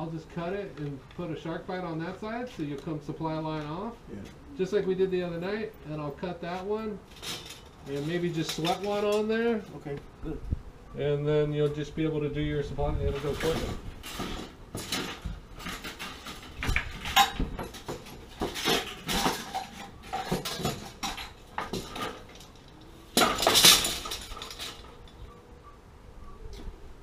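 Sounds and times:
metal tools clinking and scraping: 6.5s - 9.9s, 13.1s - 25.4s.

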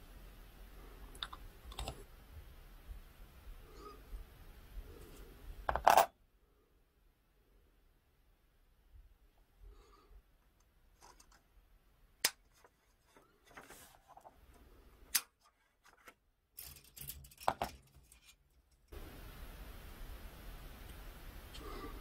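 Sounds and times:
faint hiss: 18.9s - 22.0s.

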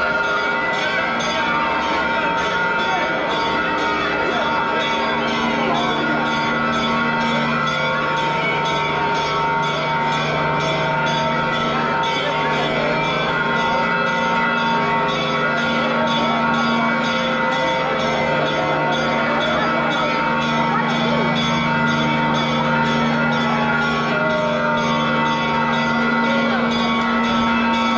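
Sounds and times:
church bells ringing: 0.0s - 27.9s
crowd voices: 0.0s - 27.9s.

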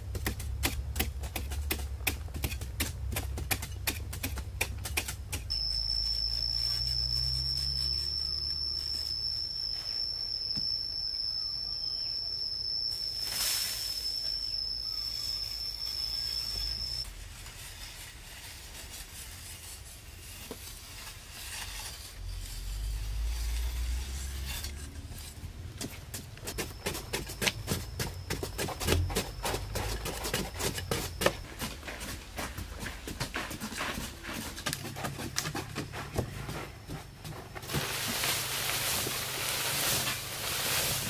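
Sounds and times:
hand tools scraping earth wall: 0.0s - 10.1s, 13.2s - 41.0s
steady high whine: 5.5s - 17.1s.

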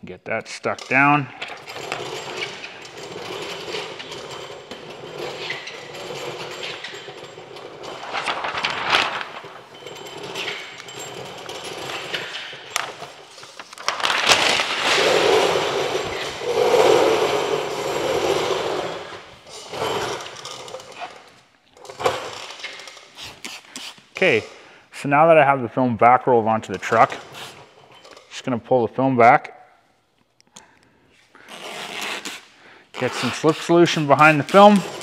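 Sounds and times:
plastic film rustling and crinkling: 7.9s - 9.8s, 13.3s - 15.6s.

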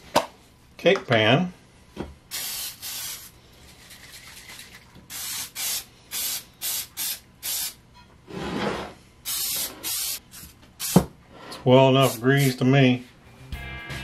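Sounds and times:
aerosol spray hissing: 2.3s - 3.3s, 5.1s - 7.8s, 9.3s - 11.0s, 12.0s - 12.6s.

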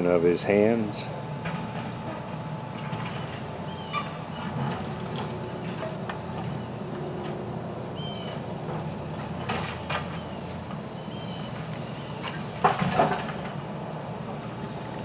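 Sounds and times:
truck engine running: 0.0s - 15.0s
bird chirping: 3.1s - 4.6s, 7.9s - 8.5s, 10.0s - 12.5s.

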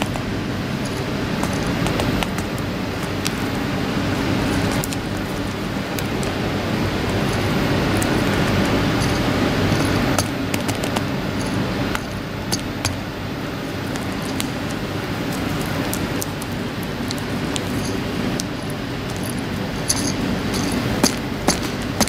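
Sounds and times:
small clicks and clinks: 0.0s - 3.5s, 13.8s - 21.8s
plastic bags and glass handled: 0.0s - 12.8s, 13.5s - 22.0s
steady low hum: 0.0s - 22.0s.

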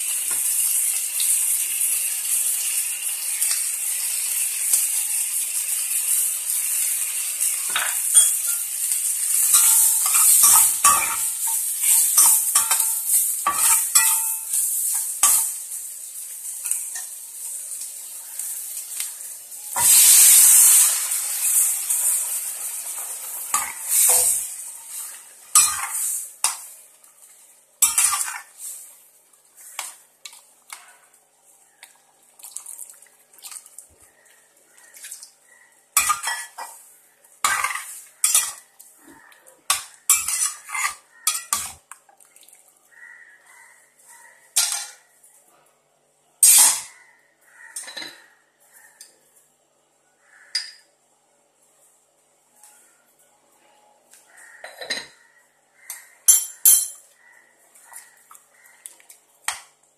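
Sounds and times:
metal spoon scraping a steel pot: 9.3s - 14.6s, 27.8s - 28.5s, 39.7s - 41.8s.

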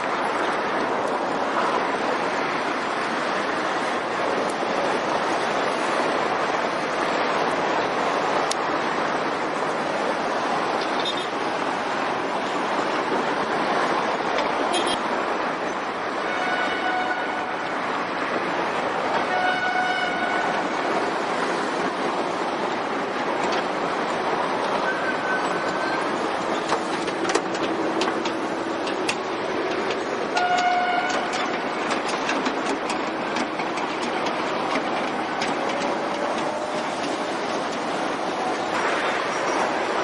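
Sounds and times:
busy street traffic: 0.0s - 40.0s
scattered clanks: 26.4s - 39.6s.

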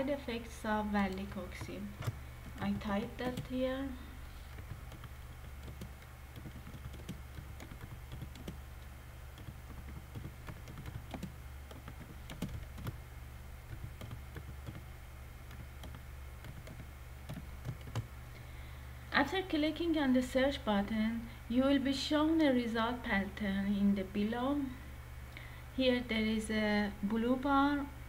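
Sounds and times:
steady low hum: 0.0s - 28.0s
keyboard keystroke clicks: 9.4s - 13.0s.

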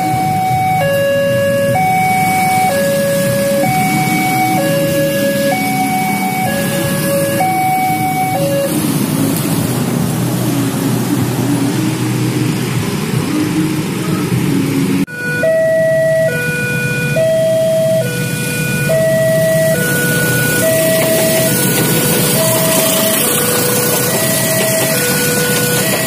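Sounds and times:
level crossing two-tone alarm: 0.0s - 9.0s, 15.1s - 26.0s
motorcycles passing: 0.0s - 15.4s, 16.3s - 26.0s.

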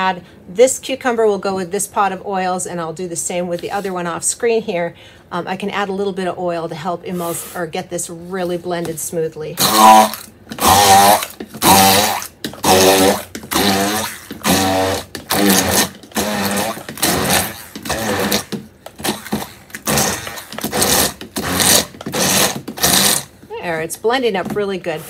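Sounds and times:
stick blender motor whine: 9.6s - 23.3s.

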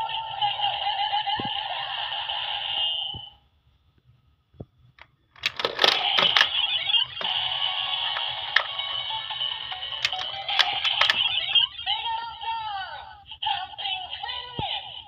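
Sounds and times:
plastic toy clicks: 5.4s - 11.7s
looping electronic standby sound: 5.5s - 11.8s
toy electronic jingle: 5.5s - 11.9s.

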